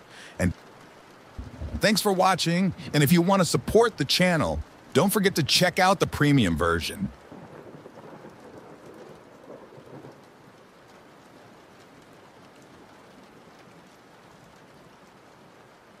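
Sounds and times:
steady hiss of rainfall: 0:00.0 - 0:16.0
low rumble: 0:01.4 - 0:02.0.

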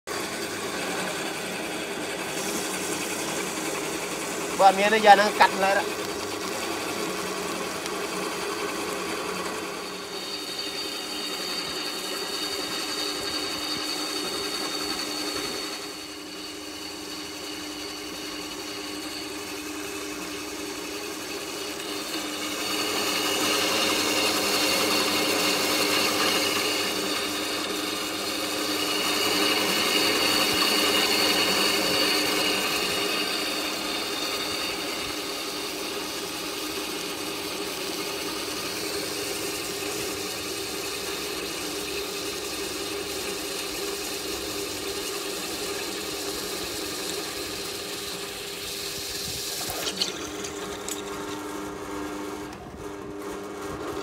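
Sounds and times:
drill press whining: 0:00.1 - 0:54.0
drill bit squealing in steel: 0:09.2 - 0:20.5, 0:21.2 - 0:43.2.

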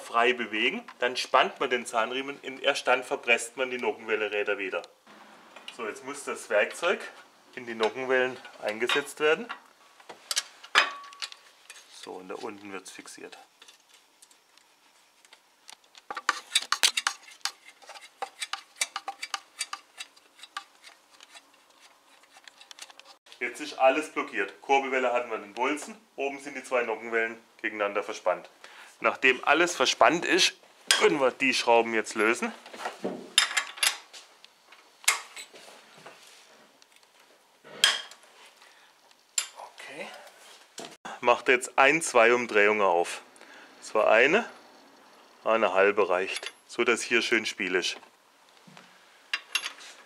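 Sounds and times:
metal tools clinking on engine: 0:33.4 - 0:34.0, 0:49.4 - 0:49.9
wrench clinking on metal bolts: 0:49.4 - 0:49.8.

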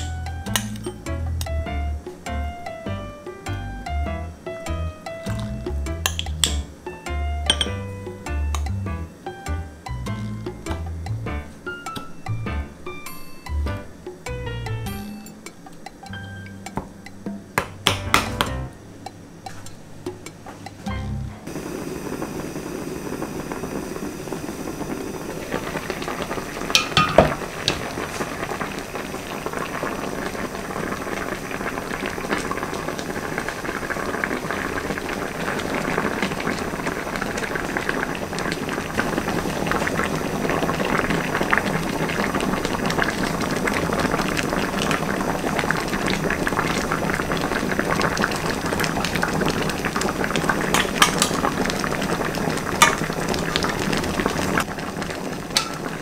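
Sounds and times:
pot of stock boiling: 0:21.4 - 0:56.0.

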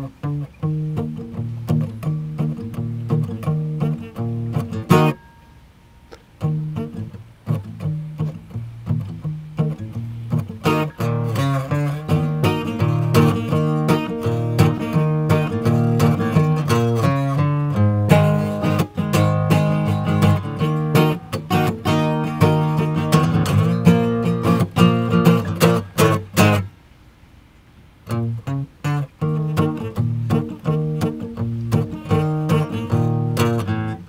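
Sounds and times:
acoustic guitar strumming and picking: 0:00.0 - 0:26.7, 0:28.0 - 0:34.0.

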